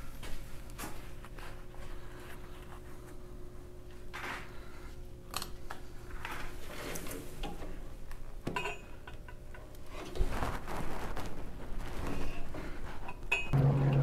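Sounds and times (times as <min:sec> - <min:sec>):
faint steady hum: 0:00.0 - 0:10.2.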